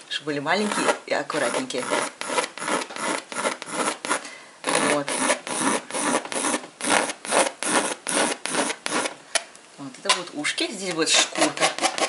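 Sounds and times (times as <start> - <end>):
pencil scratching on paper: 0.6 - 9.2, 11.0 - 12.0.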